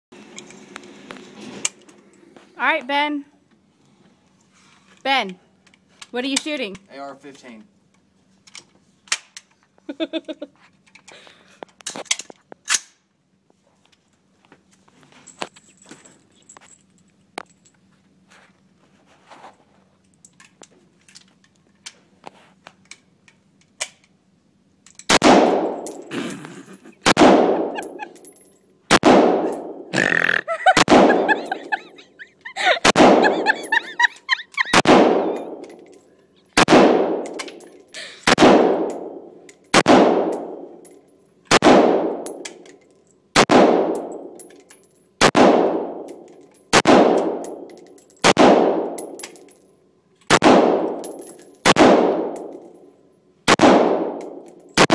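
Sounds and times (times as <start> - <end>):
rifle shots reverberating indoors: 25.1 - 26.0, 36.6 - 37.4, 38.3 - 40.7, 41.5 - 42.4, 45.2 - 46.1, 46.7 - 49.1, 50.3 - 52.6, 53.5 - 54.9.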